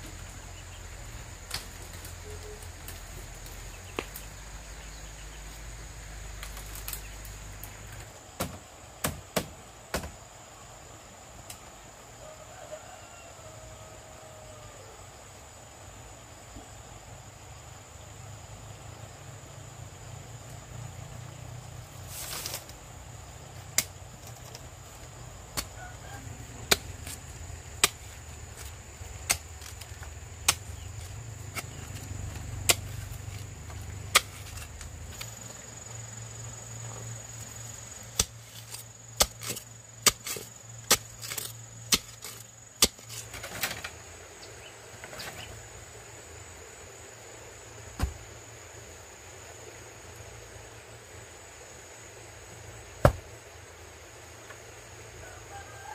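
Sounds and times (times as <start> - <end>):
hand tool striking bamboo: 25.5 - 25.8, 26.6 - 35.3, 38.1 - 43.8.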